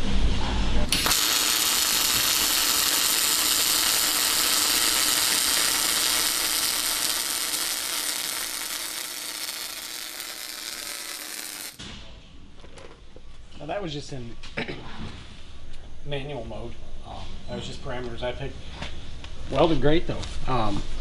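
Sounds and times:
welding arc crackling: 0:00.9 - 0:11.8.

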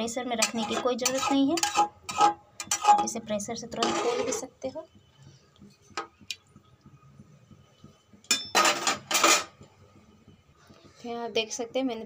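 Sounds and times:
spatula scraping a pot: 0:00.2 - 0:04.6.

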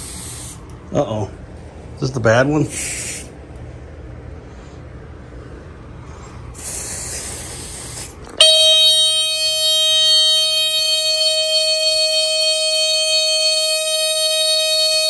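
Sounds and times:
spray hissing: 0:00.0 - 0:00.6, 0:02.7 - 0:03.4, 0:06.6 - 0:08.2
smoke alarm buzzing tone: 0:07.6 - 0:15.0.

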